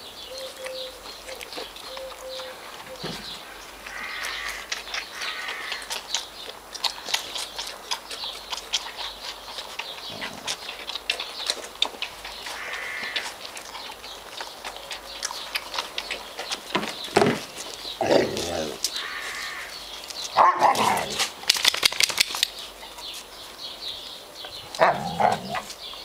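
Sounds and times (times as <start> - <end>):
puppies clicking and scuffling: 0.6 - 26.0.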